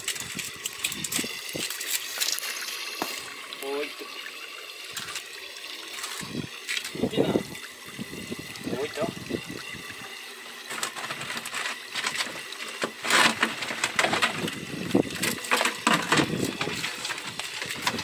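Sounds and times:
plastic bucket and lid clattering: 10.7 - 18.0.

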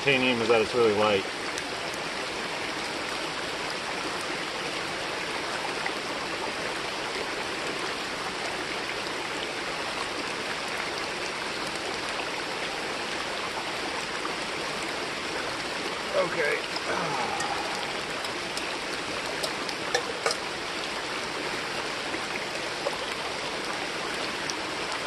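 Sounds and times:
creek water running: 0.0 - 25.0
pouring rain: 0.0 - 25.0
drops ticking: 16.6 - 20.7.

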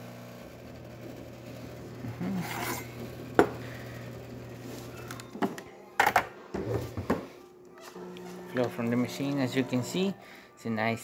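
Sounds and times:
espresso machine pump humming: 0.0 - 5.5, 7.9 - 10.5.

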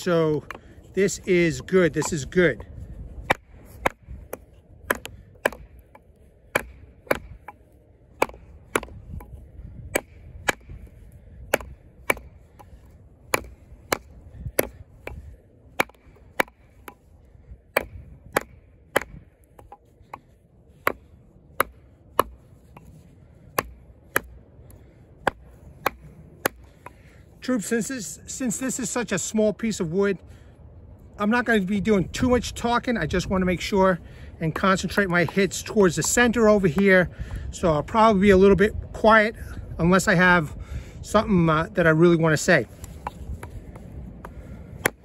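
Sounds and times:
knife chopping into wood: 1.5 - 2.5, 3.2 - 7.6, 8.2 - 17.1, 17.7 - 20.2, 20.8 - 22.9, 23.5 - 24.4, 25.2 - 27.0.

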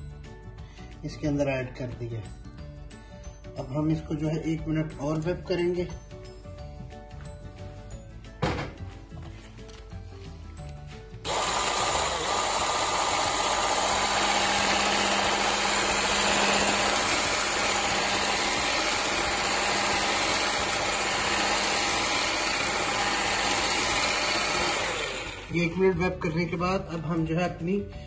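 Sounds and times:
electric hand mixer humming: 11.2 - 25.9.

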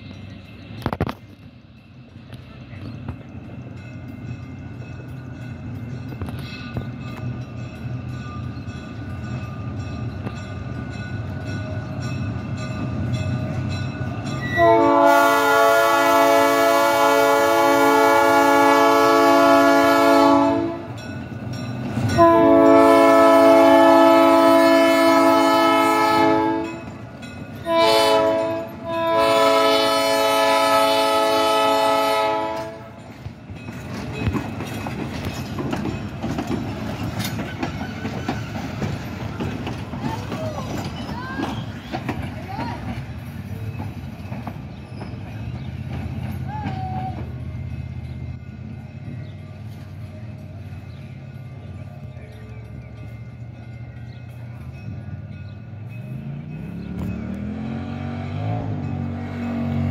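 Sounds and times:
locomotive engine running: 0.0 - 59.9
locomotive air horn: 14.4 - 21.0, 22.2 - 26.8, 27.6 - 33.0
wheels clacking over rail joints: 18.1 - 59.9.

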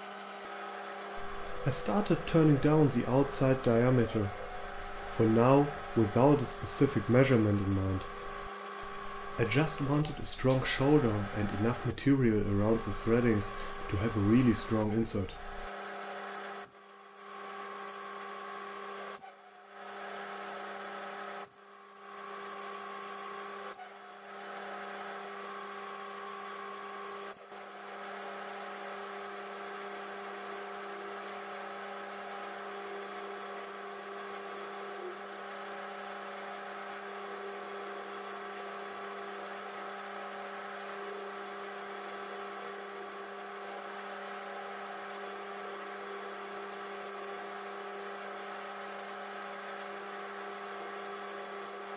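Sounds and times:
metal lathe humming and whining: 0.2 - 16.7, 22.0 - 51.9
tool cutting steel: 1.2 - 15.7.

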